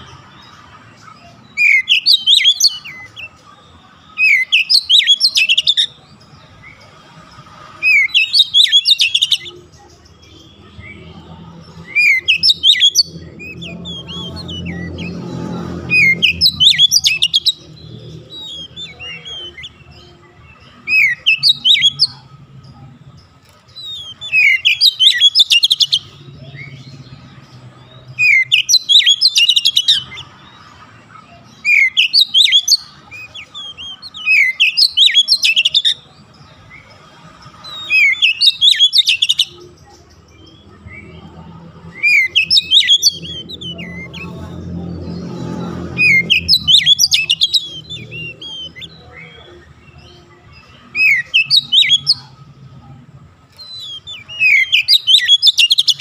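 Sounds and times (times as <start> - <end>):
bird singing whistles and trills: 0.0 - 3.4, 4.2 - 6.8, 7.8 - 22.8, 23.7 - 30.6, 31.3 - 36.9, 37.6 - 44.4, 45.0 - 52.4, 53.5 - 56.0.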